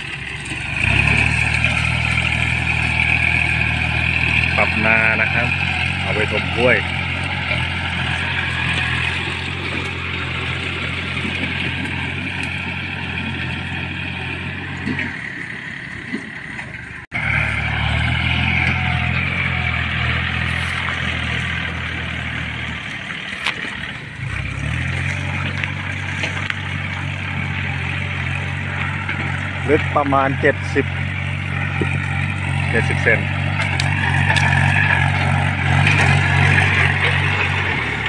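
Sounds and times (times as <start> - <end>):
tractor diesel engines running: 0.0 - 38.0.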